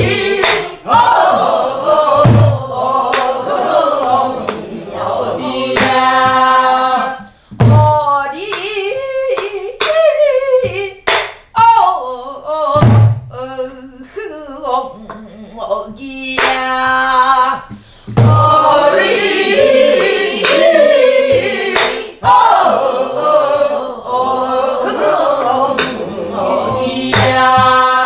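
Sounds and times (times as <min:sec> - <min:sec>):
stick striking barrel drum: 0:00.0 - 0:01.5, 0:02.1 - 0:03.6, 0:05.6 - 0:08.8, 0:18.1 - 0:22.5, 0:25.5 - 0:26.0, 0:26.6 - 0:28.0
group singing folk song: 0:00.0 - 0:10.6, 0:14.6 - 0:28.0
woman singing lead: 0:05.7 - 0:19.1, 0:26.6 - 0:28.0.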